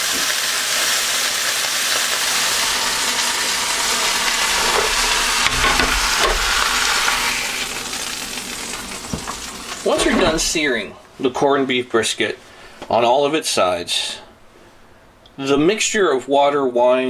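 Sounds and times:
meat sizzling in a pan: 0.0 - 10.6.

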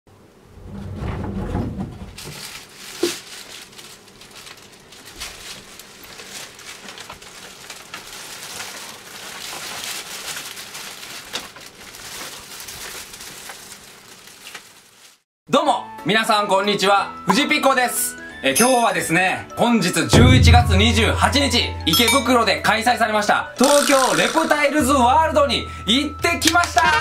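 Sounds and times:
sliding door opening: 0.5 - 2.3
plastic bags crinkling: 2.2 - 15.2
sharp knock: 20.2 - 22.2.

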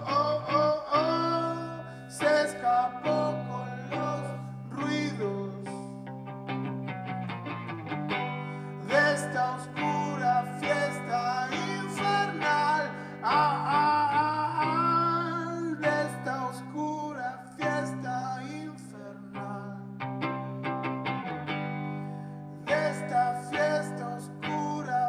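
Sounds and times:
man singing: 0.0 - 6.0, 8.8 - 20.0, 22.7 - 25.0
electric guitar playing: 0.0 - 25.0.

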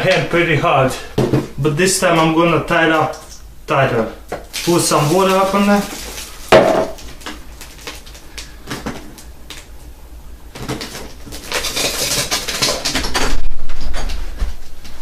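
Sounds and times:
dry ice fizzing in water: 4.5 - 6.6.

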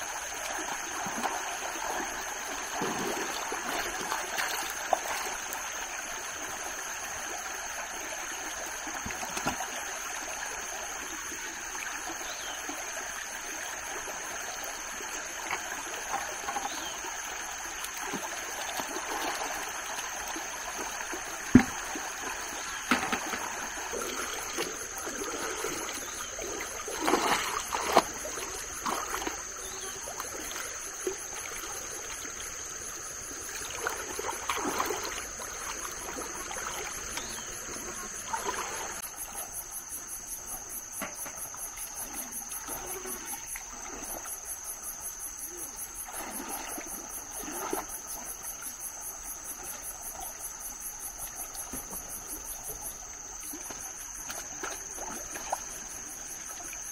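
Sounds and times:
insects buzzing: 0.0 - 56.9
pulsing insect chirp: 0.0 - 56.9
water splashing and sloshing: 0.0 - 56.9.

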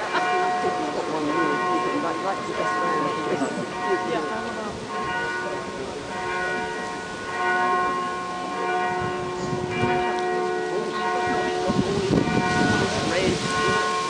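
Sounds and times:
people talking: 0.0 - 6.7, 10.7 - 13.7
church bells ringing: 0.0 - 14.0.

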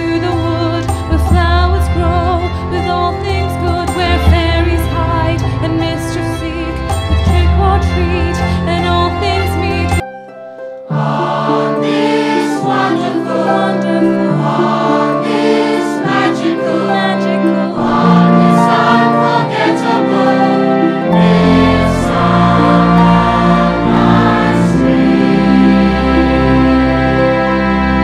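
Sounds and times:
group singing over instruments: 10.9 - 27.2.

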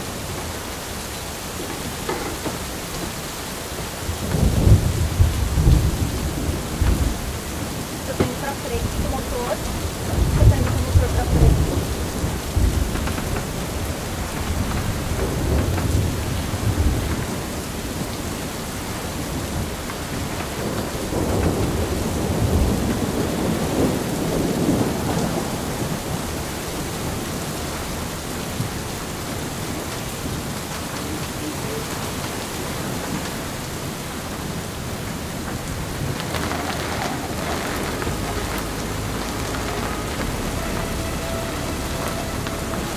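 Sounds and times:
heavy rain: 0.0 - 42.9
rolling thunder: 0.0 - 42.9.

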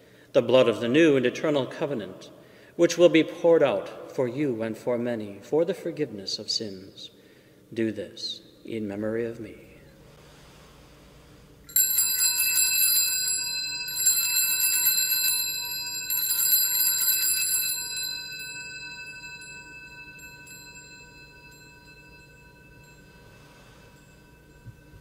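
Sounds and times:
small hand bells ringing: 11.7 - 25.0.

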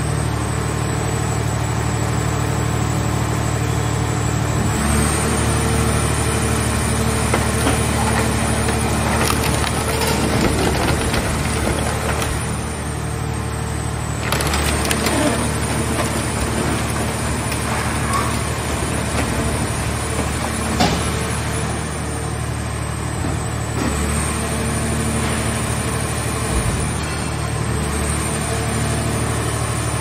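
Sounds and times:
metal clanks and creaks: 7.2 - 12.6, 14.2 - 21.8.

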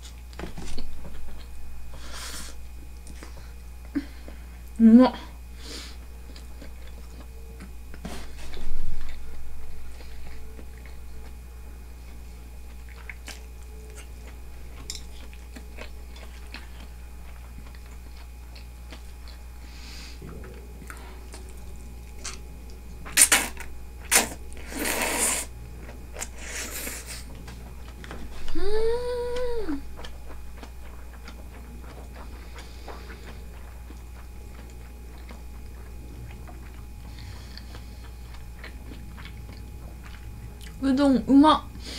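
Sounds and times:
soft chewing: 0.0 - 40.9
loud slurps: 23.2 - 25.5.

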